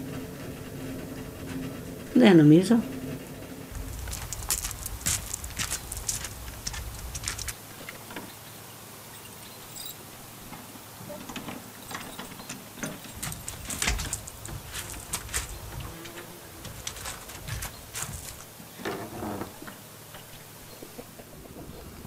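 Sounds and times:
footsteps: 3.7 - 7.6, 12.1 - 18.5
wooden door knocking and rattling: 12.0 - 16.0.

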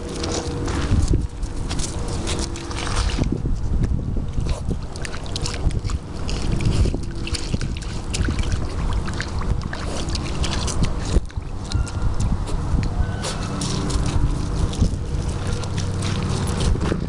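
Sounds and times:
footsteps on gravel: 0.0 - 3.7, 12.3 - 17.0
wind buffeting microphone: 0.0 - 17.0.

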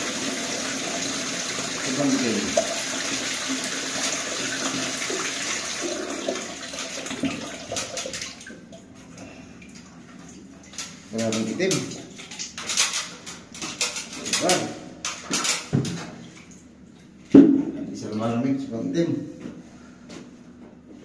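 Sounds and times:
water gushing into plastic bucket: 0.0 - 8.7
bucket knocks: 17.3 - 17.8.

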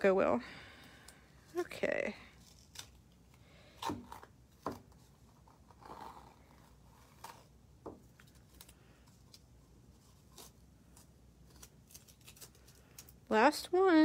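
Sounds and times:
tape peeling crackles: 2.3 - 13.3.

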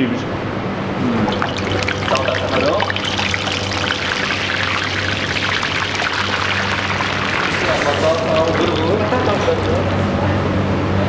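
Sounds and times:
low steady hum: 1.0 - 11.0
hot oil sizzling and crackling: 1.2 - 9.8.

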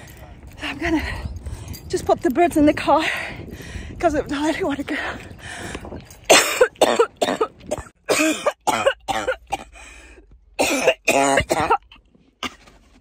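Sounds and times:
woman coughing harshly: 6.3 - 9.7, 10.6 - 12.6.

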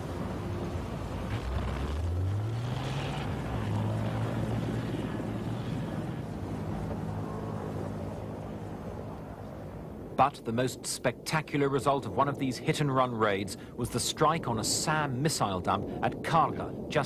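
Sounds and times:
heavy engine humming: 0.0 - 10.0.

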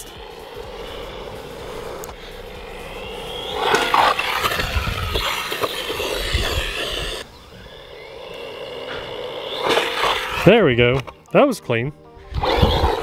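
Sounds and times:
toy car motor whining: 0.0 - 11.2, 12.2 - 13.0
toy car tumbling thumps: 3.4 - 7.2.

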